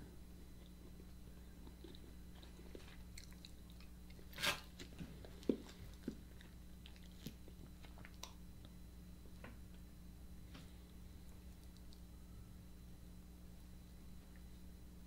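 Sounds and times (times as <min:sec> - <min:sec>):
biting and chewing mouth sounds: 0:00.4 - 0:08.8.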